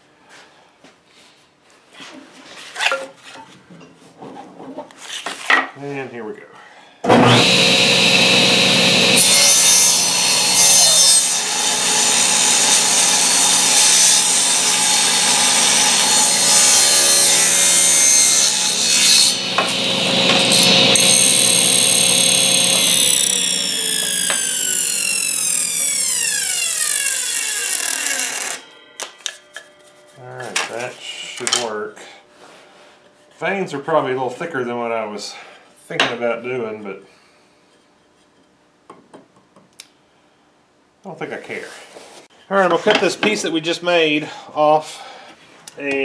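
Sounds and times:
saw blade winding down whine: 7.1s - 10.9s, 18.3s - 28.7s
table saw cutting wood: 7.1s - 28.7s.

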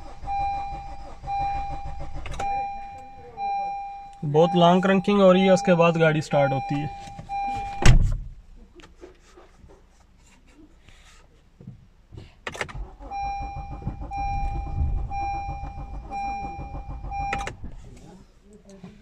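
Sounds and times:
starter cranking engine: 0.0s - 3.2s, 12.6s - 17.8s
repeating beep chime: 0.3s - 7.8s
sharp thump: 7.7s - 8.3s.

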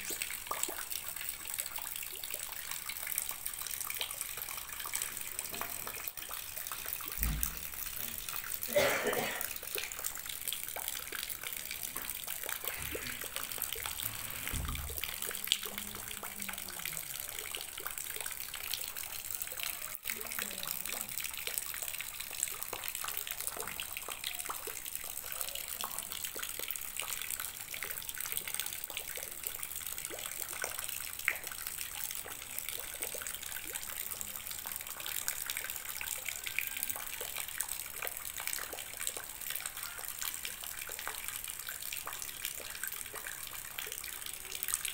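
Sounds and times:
water pouring into a tub: 0.0s - 44.9s.

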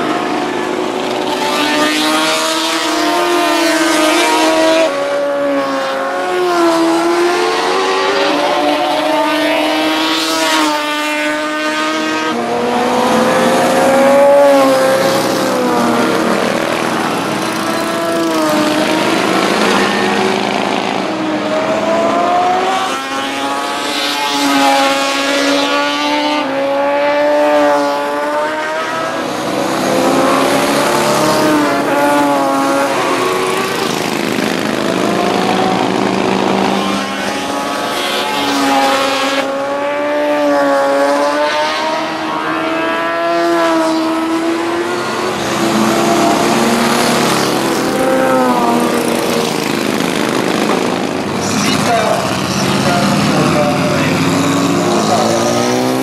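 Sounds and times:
racing engines passing: 0.0s - 56.0s.

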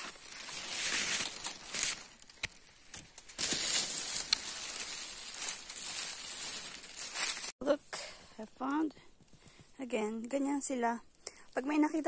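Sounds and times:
leaves and undergrowth rustling: 0.0s - 7.6s.

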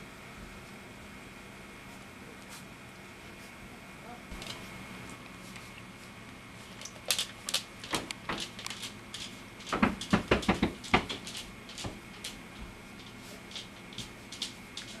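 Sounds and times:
light clicks and knocks: 6.8s - 15.0s.

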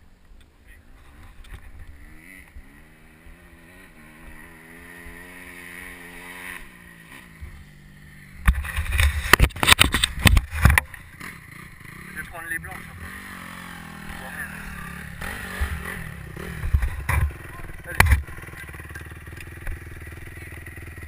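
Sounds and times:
motorbike engine idling: 10.3s - 21.0s
loud irregular thumps and knocks: 16.6s - 17.4s.

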